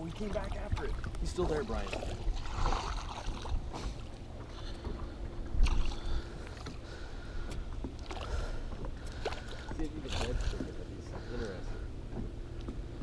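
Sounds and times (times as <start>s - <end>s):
wind rumbling on microphone: 0.0s - 9.0s
water lapping and swirling: 0.0s - 13.0s.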